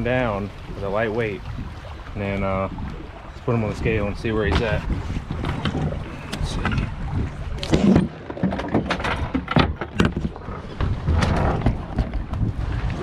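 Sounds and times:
wind rumble on microphone: 0:00.0 - 0:13.0
gear knocking and clattering on boat: 0:03.6 - 0:13.0.

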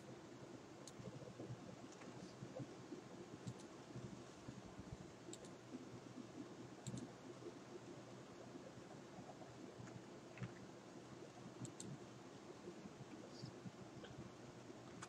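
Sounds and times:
low steady hum: 0:00.0 - 0:15.0
computer mouse clicks: 0:00.8 - 0:01.2, 0:03.4 - 0:03.7, 0:05.3 - 0:05.6, 0:06.8 - 0:07.1, 0:11.6 - 0:12.0.

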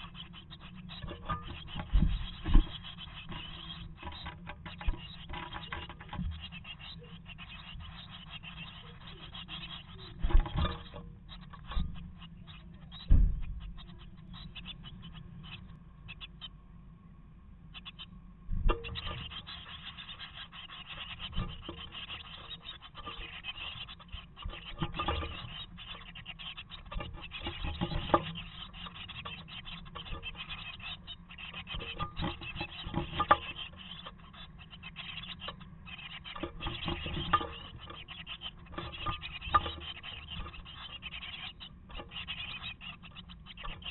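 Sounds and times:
nestlings rustling and scraping: 0:21.0 - 0:43.9.

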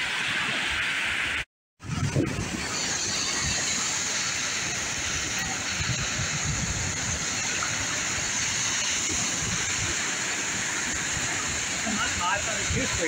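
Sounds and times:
small waves breaking: 0:00.0 - 0:13.0.

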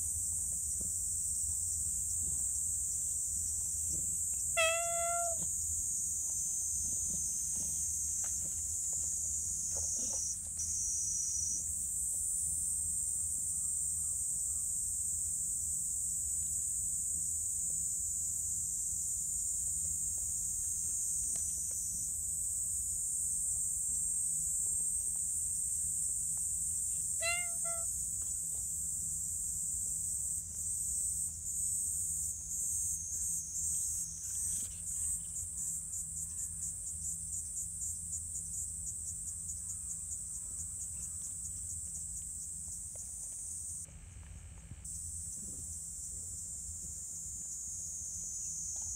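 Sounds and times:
high insect chorus: 0:00.0 - 0:48.9
cat meowing: 0:04.6 - 0:05.5, 0:27.2 - 0:27.9.

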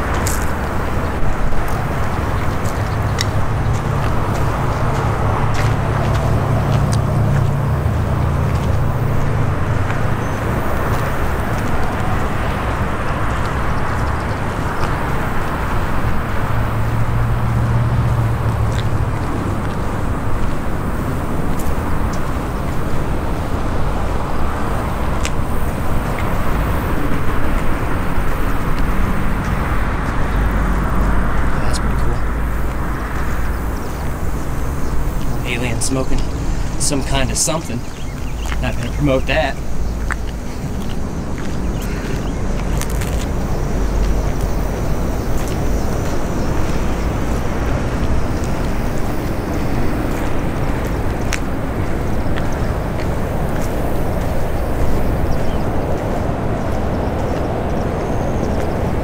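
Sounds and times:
low rumble: 0:00.0 - 0:53.3.

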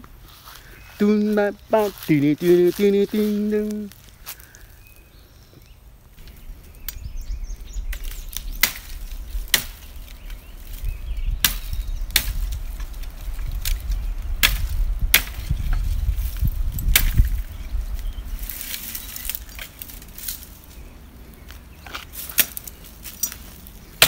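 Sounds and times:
machete chopping dry branches: 0:07.8 - 0:20.6, 0:21.4 - 0:24.0.

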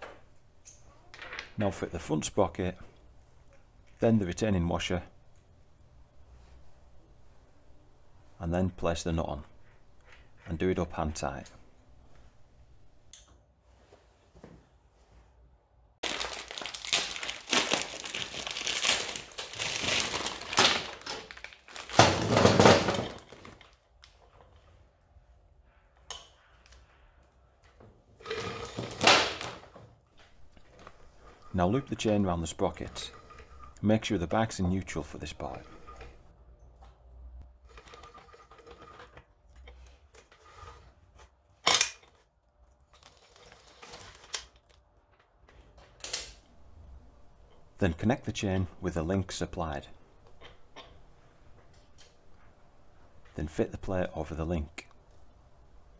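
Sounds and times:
roller chain clicking and rattling: 0:37.7 - 0:39.2.

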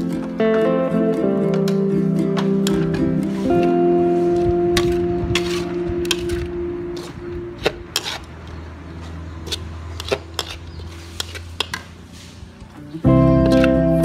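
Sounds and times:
metal spatula scraping a wok: 0:03.3 - 0:08.6, 0:09.4 - 0:12.5.

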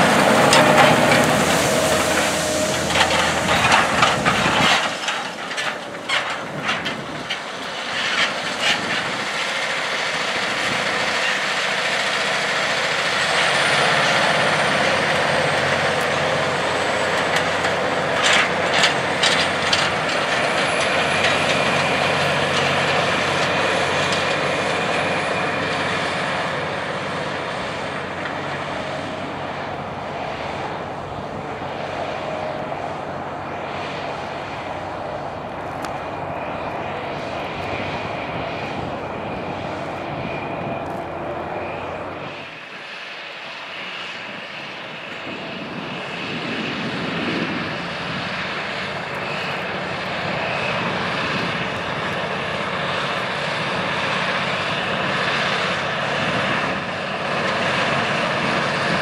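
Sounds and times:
implement rattling: 0:00.0 - 0:28.6
tractor diesel engine under load: 0:00.0 - 0:59.0.

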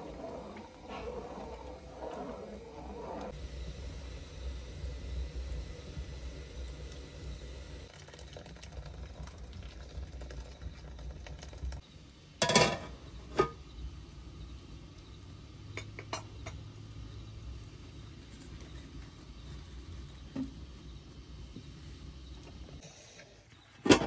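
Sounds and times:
metal lid clattering on pot: 0:12.4 - 0:13.6.

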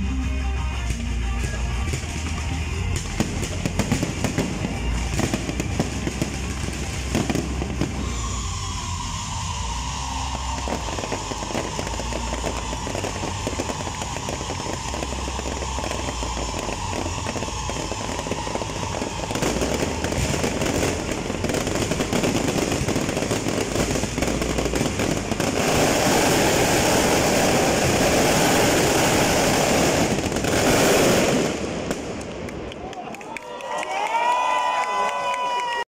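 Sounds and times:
fireworks crackling bursts: 0:00.0 - 0:35.8.

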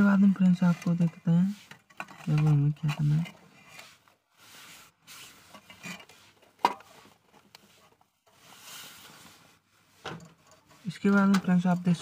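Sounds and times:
circuit board rustling and scraping: 0:00.0 - 0:12.0.

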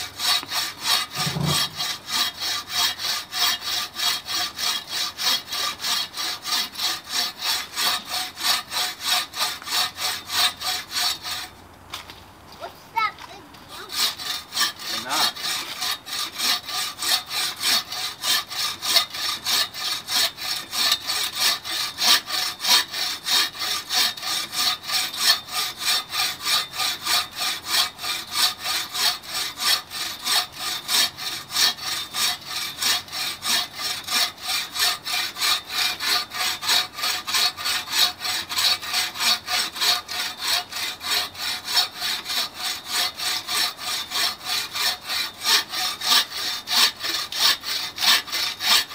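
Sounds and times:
saw rasping through log: 0:00.0 - 0:11.6, 0:13.0 - 0:48.9.

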